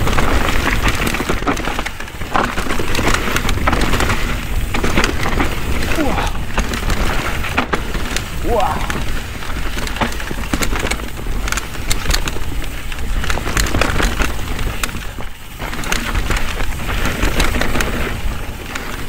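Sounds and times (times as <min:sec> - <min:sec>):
bike rattling clicks: 0:00.0 - 0:19.0
bike tyres crunching on dirt: 0:00.0 - 0:19.0.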